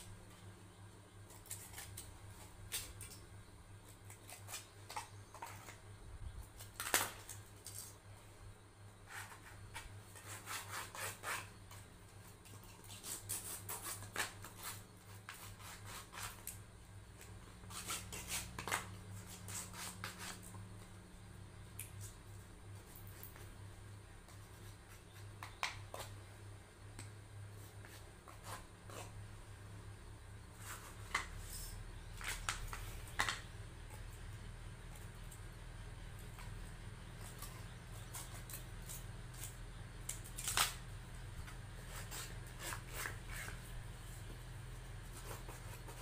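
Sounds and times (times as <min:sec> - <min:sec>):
steady low hum: 0:00.0 - 0:46.0
scissors snipping metallic foil: 0:37.3 - 0:40.9.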